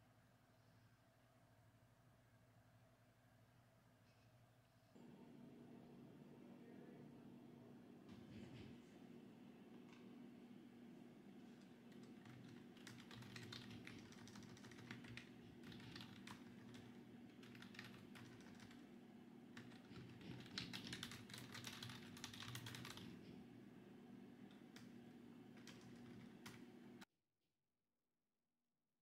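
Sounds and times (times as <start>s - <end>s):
typing on keyboard: 11.6s - 18.9s, 19.6s - 23.3s, 24.5s - 26.7s.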